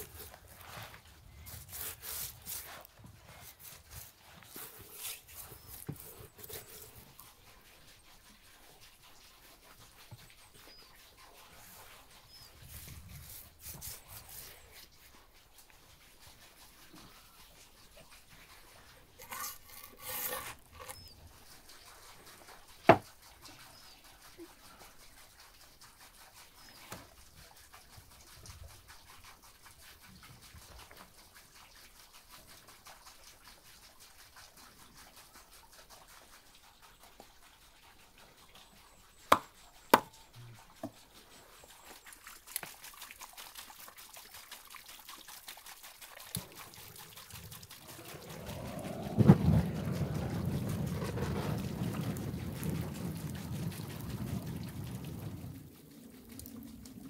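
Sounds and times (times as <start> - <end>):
rustling noise: 0.0 - 7.0.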